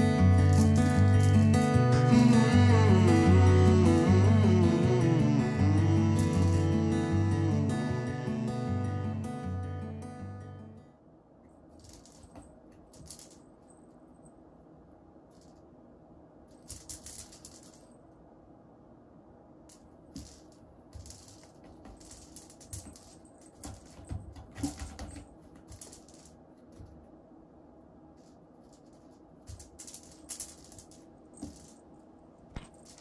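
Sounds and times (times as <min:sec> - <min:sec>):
cat pawing at toy and scratching post: 0:20.2 - 0:27.0.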